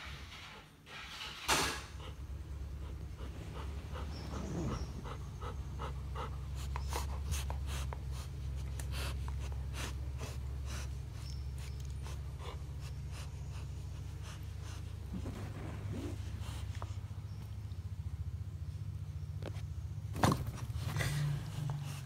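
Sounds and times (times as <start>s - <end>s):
dog panting: 0.2s - 17.6s
steady low hum: 1.7s - 22.0s.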